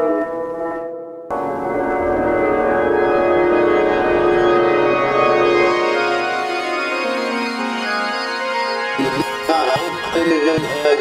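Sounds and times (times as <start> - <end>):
sustained organ-like chords: 1.3 - 11.0.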